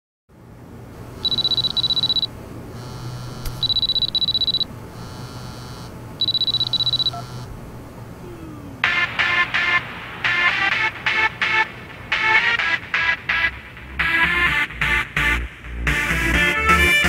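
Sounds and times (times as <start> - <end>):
low hum: 0.7 - 12.2
mobile phone ringing: 1.2 - 7.5.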